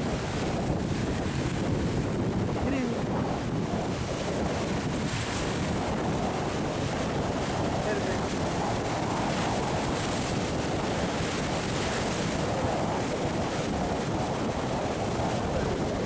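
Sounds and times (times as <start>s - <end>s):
surf breaking against rocks: 0.0s - 16.0s
wind buffeting microphone: 0.0s - 16.0s.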